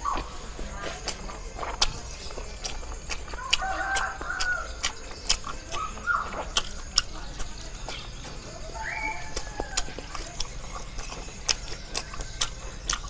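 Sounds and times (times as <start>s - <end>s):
wet chewing clicks: 0.0s - 13.0s
rooster crowing: 3.3s - 4.8s.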